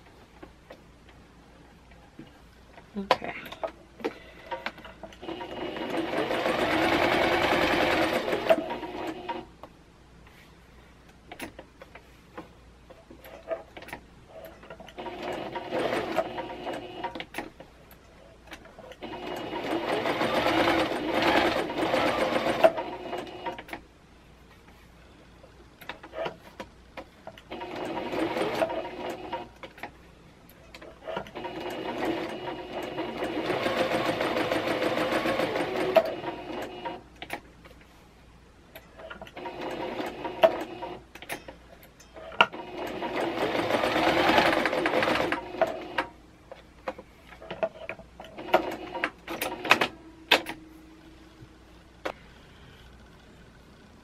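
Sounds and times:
sewing machine stitching: 5.2 - 9.4, 14.9 - 17.3, 19.0 - 23.7, 27.5 - 29.5, 31.0 - 37.0, 39.3 - 41.0, 42.4 - 46.1, 47.6 - 49.9.

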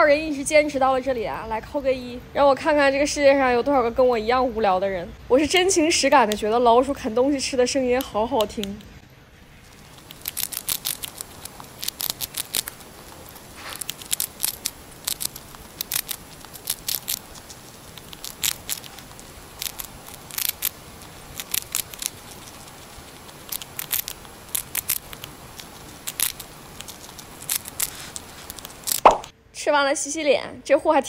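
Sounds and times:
hamster gnawing biscuit: 9.5 - 29.3.

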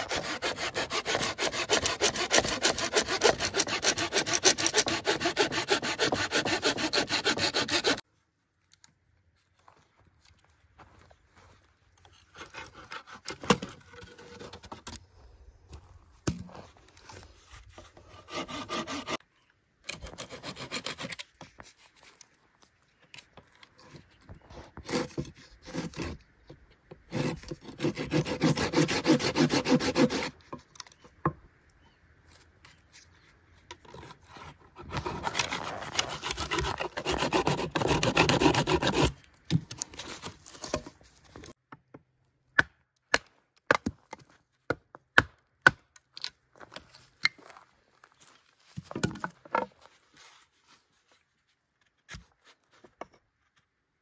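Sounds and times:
hand saw cutting wood: 0.0 - 8.0, 17.9 - 19.2, 19.9 - 21.4, 24.5 - 26.2, 27.0 - 30.6, 33.8 - 40.9.

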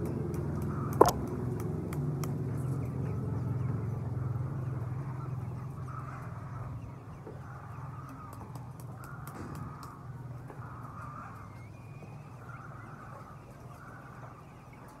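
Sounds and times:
low steady rumble: 0.0 - 8.3
chickens calling: 2.4 - 15.0.

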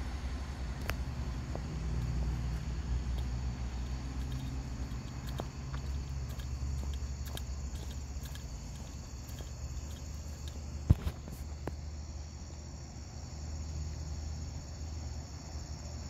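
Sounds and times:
crickets chirping: 0.0 - 16.0
low steady rumble: 0.0 - 16.0
faint ticks: 0.8 - 11.0.

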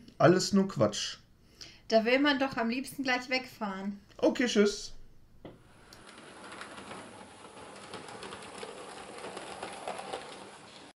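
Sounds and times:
model train running on track: 6.0 - 10.9.

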